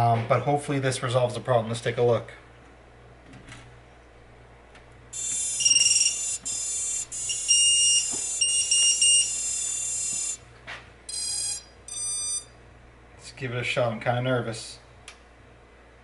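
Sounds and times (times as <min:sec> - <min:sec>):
motors beeping power-up tones: 0:05.2 - 0:10.4, 0:11.1 - 0:12.4
short beeps: 0:05.2 - 0:10.4, 0:11.1 - 0:12.5.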